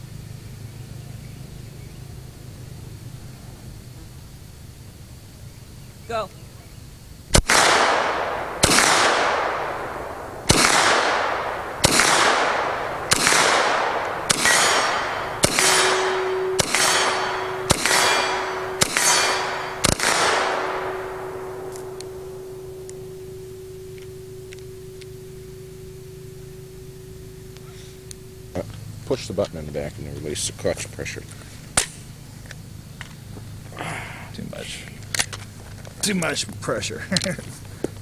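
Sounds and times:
faint steady tone: 0.0s - 38.0s
low background noise: 0.0s - 38.0s
rifle shots with echo: 7.3s - 28.0s.

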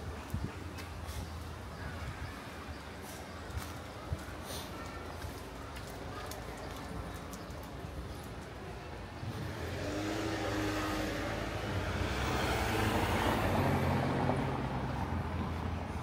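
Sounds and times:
road vehicle passing by: 9.0s - 16.0s.

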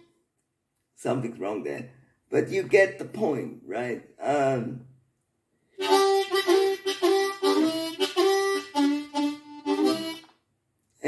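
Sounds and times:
harmonica playing blues: 5.8s - 10.4s.

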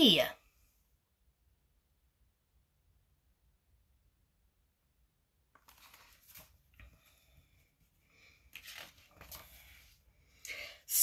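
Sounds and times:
paper pages rustling: 5.5s - 10.1s.

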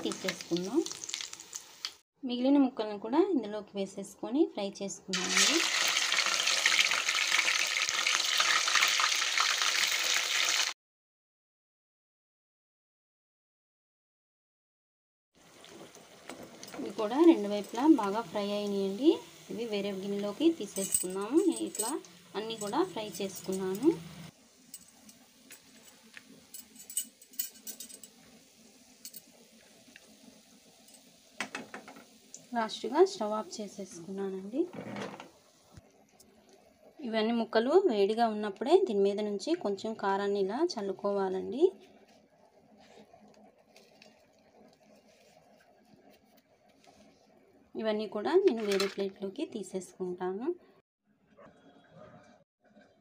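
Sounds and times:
crackling oil spatter: 0.0s - 2.0s, 15.4s - 33.2s
fish sizzling in hot oil: 0.0s - 2.0s, 5.2s - 10.8s, 15.4s - 34.6s
light crackles and clicks: 0.0s - 2.0s
low steady hum: 15.7s - 30.1s.

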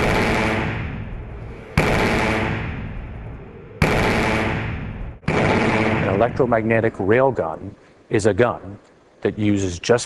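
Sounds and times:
heavy booming impacts: 0.0s - 6.9s.

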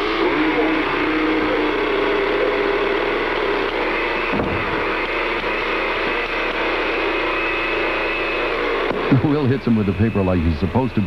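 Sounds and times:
blender motor running: 0.0s - 10.4s
thump: 4.3s - 4.8s.

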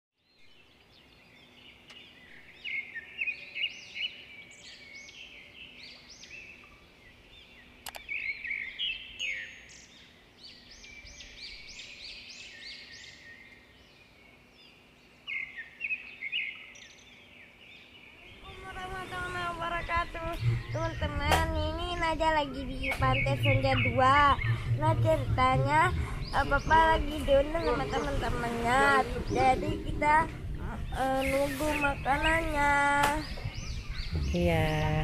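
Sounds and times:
birds singing and chirping: 0.2s - 35.0s
sharp click: 7.8s - 8.1s.

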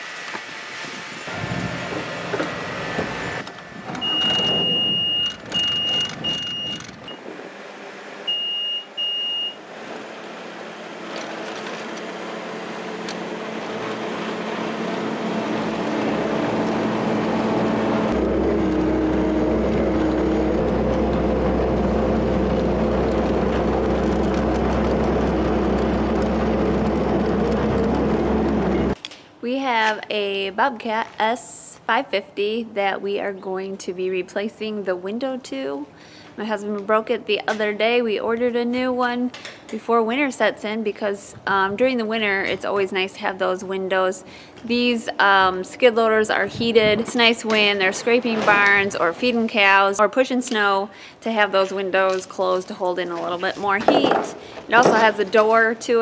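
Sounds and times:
high electronic beeps: 4.0s - 7.2s
diesel engine running: 9.6s - 29.0s
deep rumble: 15.1s - 29.0s.

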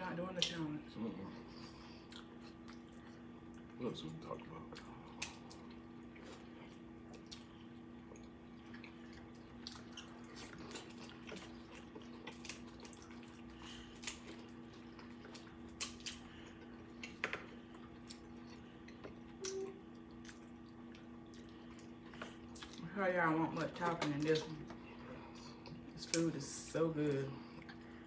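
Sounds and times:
steady low hum: 0.0s - 28.0s
crab legs cracking and chewing: 4.5s - 22.9s.

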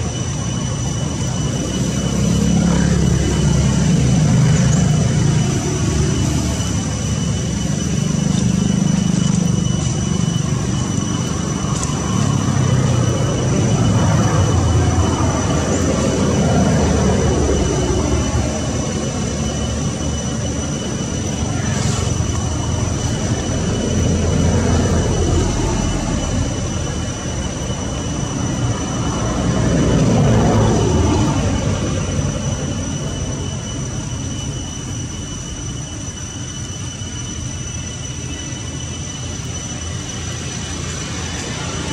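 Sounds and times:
vehicles passing by: 0.0s - 35.2s, 39.5s - 41.9s
steady high whine: 0.0s - 41.9s.

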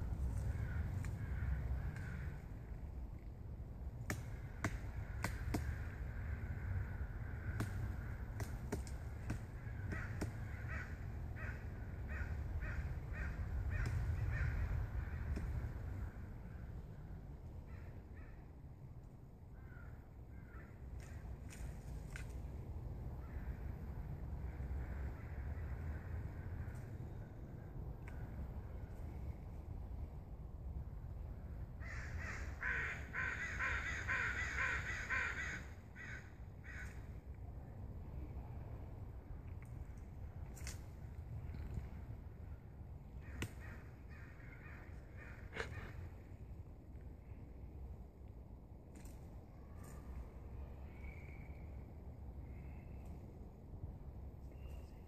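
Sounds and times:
woodpecker harsh calls: 9.2s - 15.3s, 31.8s - 37.0s.

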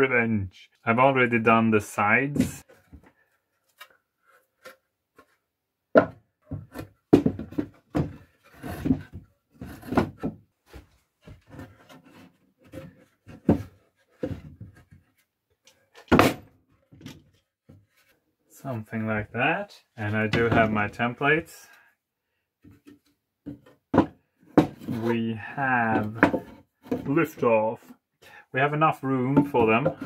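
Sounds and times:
wooden boards knocking and scraping: 5.9s - 15.0s, 16.0s - 16.4s, 20.2s - 21.0s, 22.7s - 25.1s, 25.8s - 27.4s, 29.3s - 30.0s.

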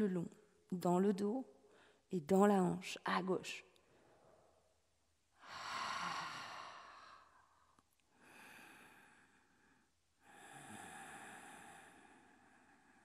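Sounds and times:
woman breathing deeply: 5.4s - 13.0s.

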